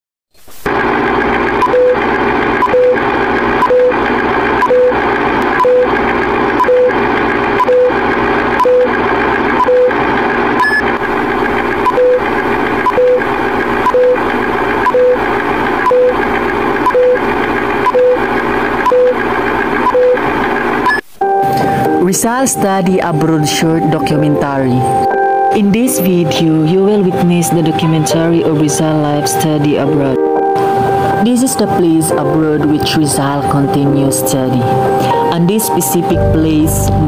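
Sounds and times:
projector rattle and crackle: 0:00.4 - 0:21.0.

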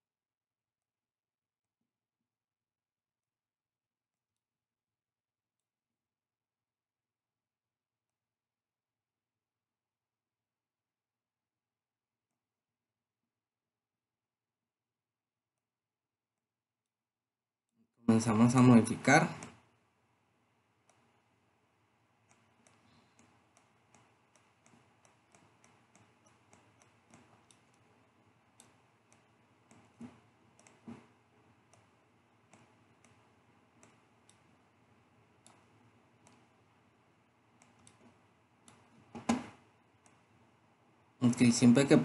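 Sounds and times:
computer mouse clicks: 0:19.2 - 0:19.7, 0:20.8 - 0:21.2, 0:22.2 - 0:40.5.

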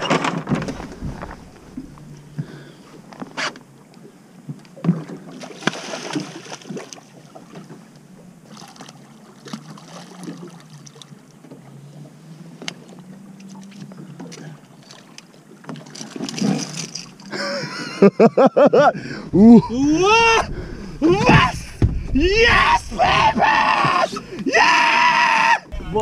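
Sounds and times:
boat engine running: 0:00.0 - 0:04.6, 0:10.1 - 0:17.8.

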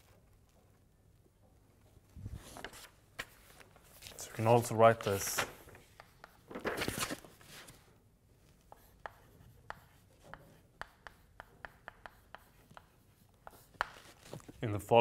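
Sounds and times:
chalk tapping and scratching on blackboard: 0:05.9 - 0:06.5, 0:08.5 - 0:14.5.

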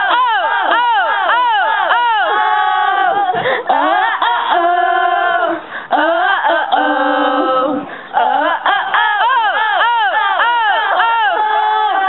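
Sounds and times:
people singing long held notes: 0:00.0 - 0:12.0.

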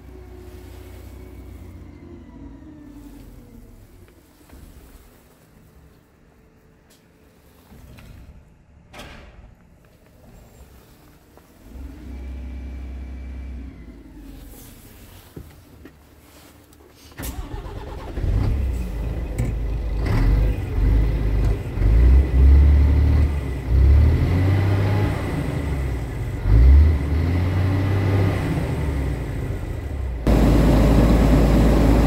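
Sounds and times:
diesel truck engine revving: 0:11.6 - 0:15.3, 0:17.2 - 0:32.0
steady loud noise: 0:30.3 - 0:32.0.

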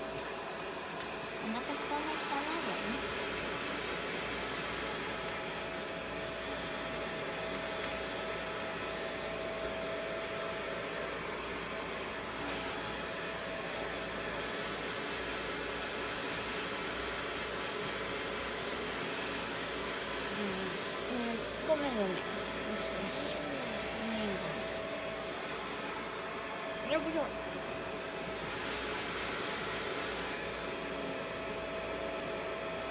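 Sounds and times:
hair dryer running: 0:00.0 - 0:32.9.

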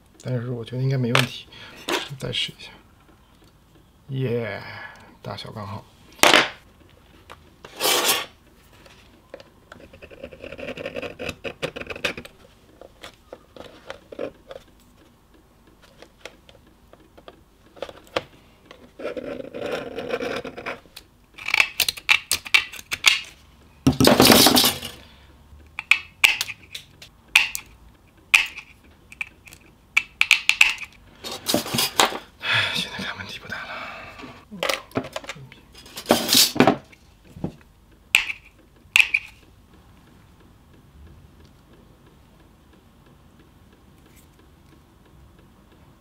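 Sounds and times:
pen scratching on metal: 0:07.7 - 0:08.4, 0:09.8 - 0:12.2, 0:19.0 - 0:20.8.

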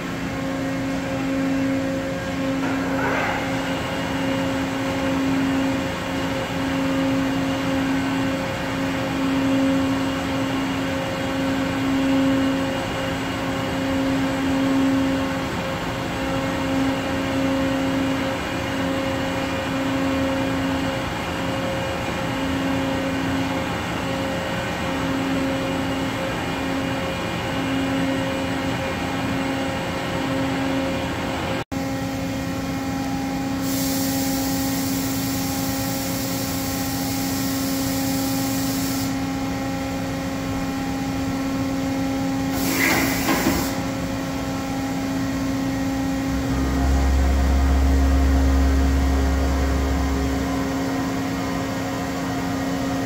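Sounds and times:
milling machine hum: 0:00.0 - 0:20.6, 0:34.6 - 0:53.0
hiss: 0:33.4 - 0:39.3, 0:42.4 - 0:43.9
deep rumble: 0:45.9 - 0:52.3.

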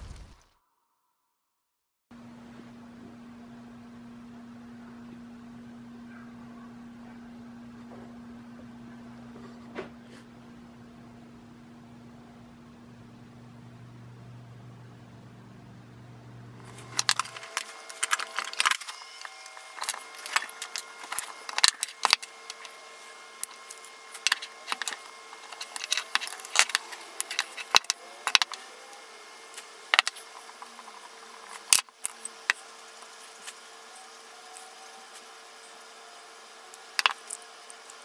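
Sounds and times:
metal parts clicking and clinking: 0:16.7 - 0:33.6, 0:36.7 - 0:38.0.

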